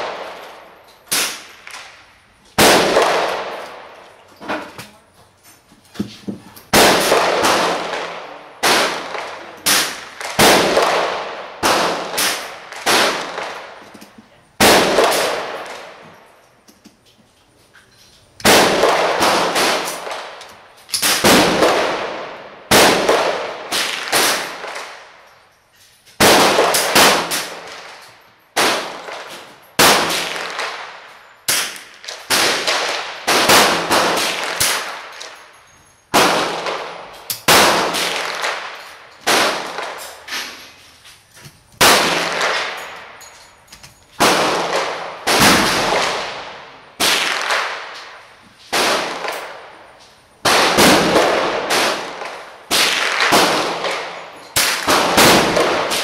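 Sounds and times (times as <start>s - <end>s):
rifle shots echoing indoors: 2.6s - 4.0s, 6.7s - 13.8s, 14.6s - 16.0s, 18.4s - 25.1s, 26.2s - 35.4s, 36.1s - 40.6s, 41.8s - 43.2s, 44.2s - 49.8s, 50.4s - 56.0s.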